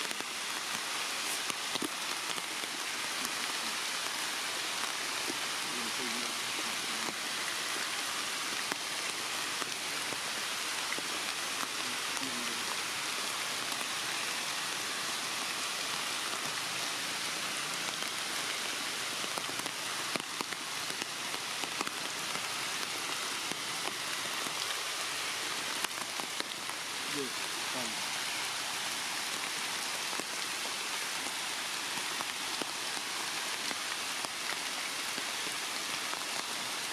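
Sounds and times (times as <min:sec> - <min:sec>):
raindrops ticking: 0:00.0 - 0:36.7
steady rain falling: 0:00.0 - 0:36.9.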